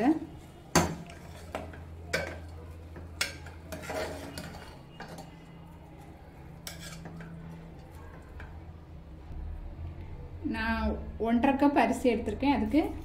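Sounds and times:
low steady hum: 0.0 - 13.0
spoon scraping and clinking pot: 0.8 - 5.4, 6.6 - 7.6.

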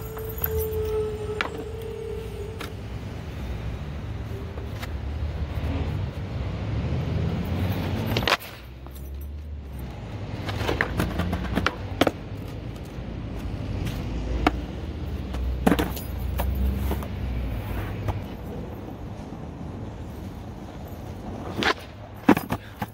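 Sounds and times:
skateboard wheels rolling: 10.3 - 13.0.

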